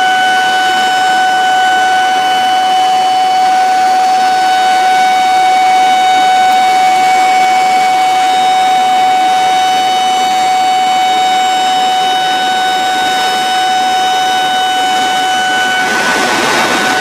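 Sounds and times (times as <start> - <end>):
warning siren steady pitch: 0.0 - 17.0
water rushing: 12.3 - 17.0.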